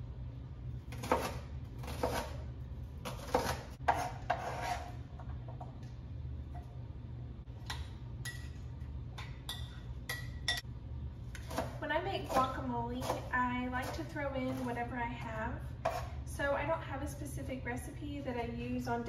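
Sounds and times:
low steady hum: 0.0s - 19.0s
knife chopping on cutting board: 0.9s - 4.9s.

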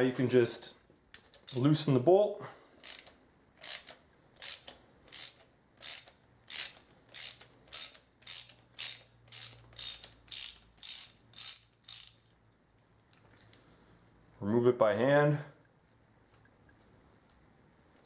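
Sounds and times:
ratchet wrench clicking: 1.2s - 1.6s, 2.8s - 12.4s.

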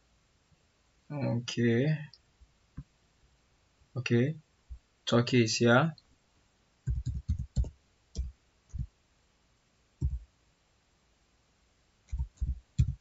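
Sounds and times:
keyboard key taps: 6.9s - 8.9s, 10.0s - 10.2s, 12.1s - 13.0s.

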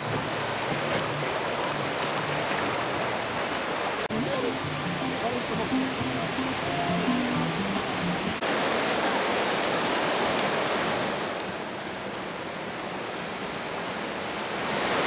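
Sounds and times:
river rapids rushing: 0.0s - 15.0s.

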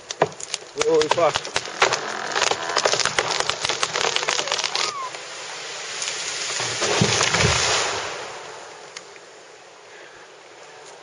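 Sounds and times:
branches snapping: 0.0s - 5.2s
rush of falling limbs and debris: 0.0s - 11.0s.

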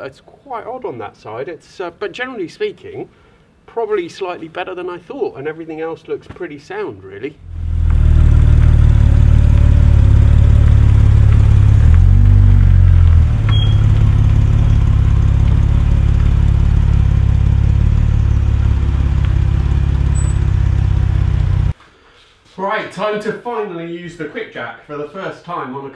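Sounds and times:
car engine running: 7.4s - 21.7s.

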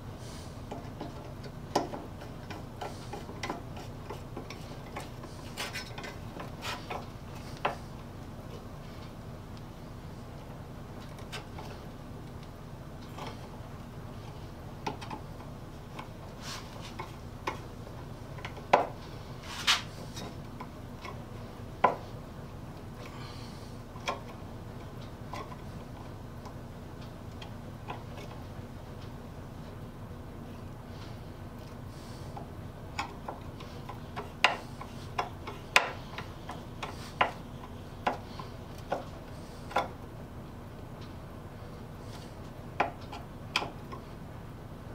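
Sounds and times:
hand tools clicking and tapping: 0.7s - 7.8s, 14.8s - 16.2s, 16.9s - 17.7s, 18.3s - 19.0s, 24.0s - 26.6s, 32.4s - 40.0s, 42.8s - 44.1s.

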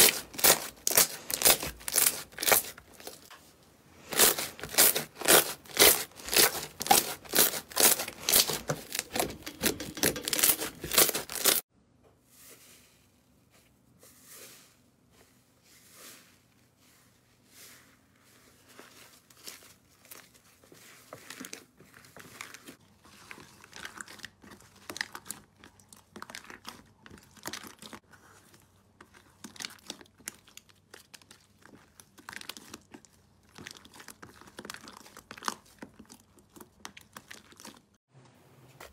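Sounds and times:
slime squishing crackles: 0.0s - 3.3s, 4.0s - 11.6s, 18.0s - 38.0s.

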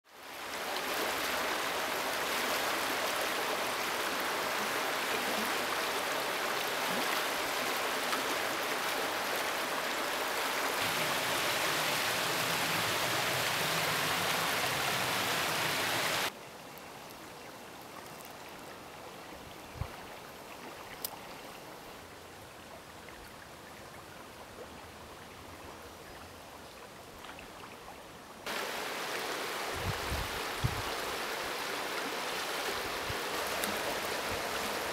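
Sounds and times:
river water rushing over riffles: 0.1s - 16.4s, 28.5s - 34.9s.

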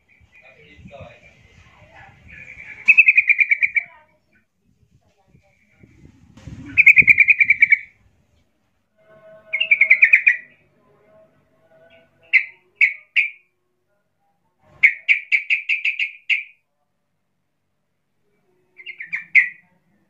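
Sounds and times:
bird chattering trills: 2.1s - 4.0s, 6.6s - 7.9s, 9.5s - 10.5s, 12.2s - 13.4s, 14.8s - 16.6s, 18.8s - 19.7s.

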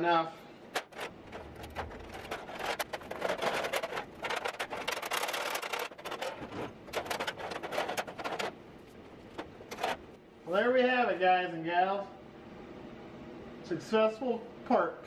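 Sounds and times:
sheet metal scraping and clinking: 0.7s - 8.6s.

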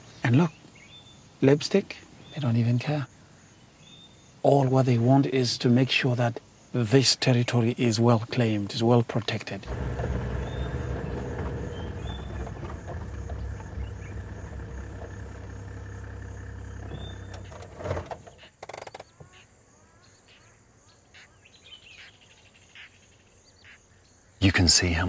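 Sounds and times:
open outdoor ambience: 0.0s - 25.0s
vehicle engine rumbling: 9.6s - 18.5s.

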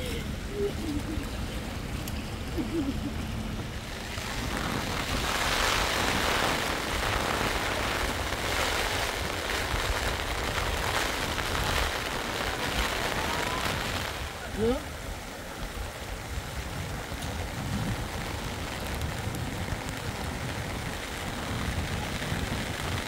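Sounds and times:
rain hissing: 0.0s - 23.0s
wind rumbling on microphone: 0.0s - 23.0s.

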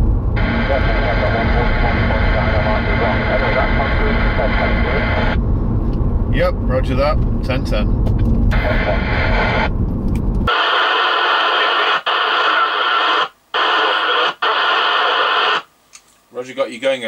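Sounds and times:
in-car road rumble: 0.0s - 10.5s
radio static hiss: 0.4s - 5.4s, 8.5s - 9.7s, 10.5s - 15.7s.

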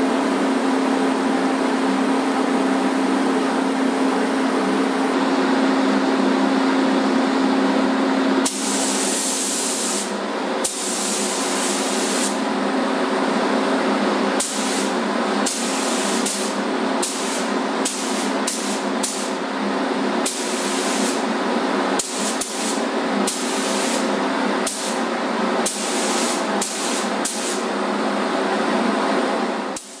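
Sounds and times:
spray gun hissing: 8.4s - 12.4s, 14.4s - 19.4s, 20.2s - 21.3s, 22.0s - 27.7s.

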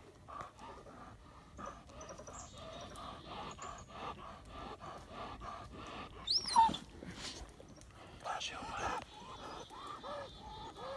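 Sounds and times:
dog whining: 6.2s - 6.9s
dog yelping: 6.2s - 6.9s.

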